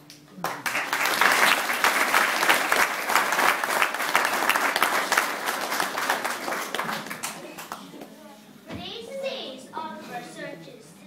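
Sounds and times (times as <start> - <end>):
audience applauding: 0.4 - 8.0.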